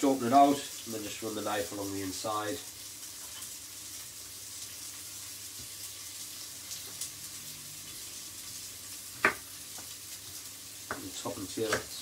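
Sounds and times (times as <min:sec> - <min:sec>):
onions sizzling in oil: 0:00.0 - 0:12.0
knife taps on wooden board: 0:11.7 - 0:11.9.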